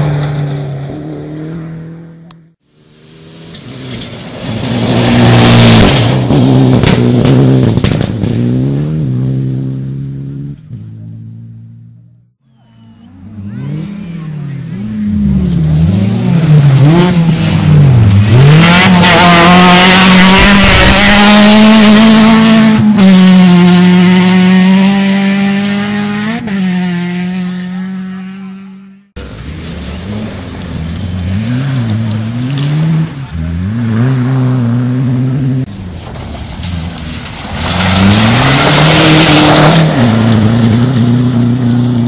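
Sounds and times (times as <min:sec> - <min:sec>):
tyres on gravel: 0:00.0 - 0:02.0, 0:02.9 - 0:08.5, 0:12.4 - 0:22.4, 0:29.2 - 0:42.0
rally car engine revving: 0:00.0 - 0:12.1, 0:13.1 - 0:42.0.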